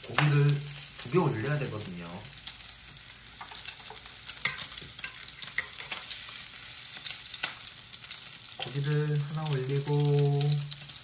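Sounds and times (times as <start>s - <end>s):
meat sizzling on grill pan: 0.0s - 11.0s
chopsticks clicking on grill: 3.4s - 6.1s.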